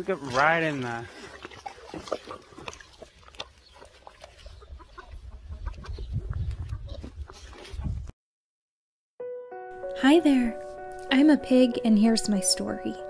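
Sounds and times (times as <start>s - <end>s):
chickens clucking: 0.2s - 8.0s.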